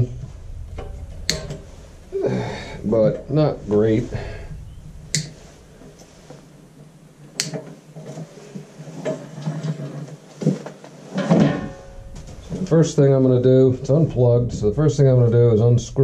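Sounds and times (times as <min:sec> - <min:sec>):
sharp clicks: 0:04.4 - 0:05.9, 0:07.4 - 0:07.6.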